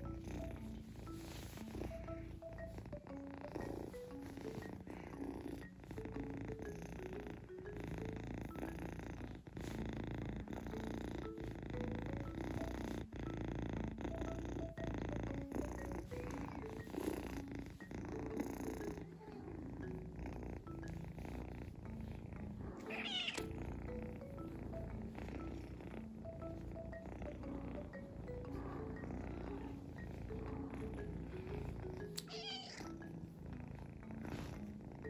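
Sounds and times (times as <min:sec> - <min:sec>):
background music with mallet notes: 0:00.0 - 0:35.0
kitten purring: 0:00.0 - 0:35.0
kitten meowing: 0:22.9 - 0:23.5, 0:32.2 - 0:32.9.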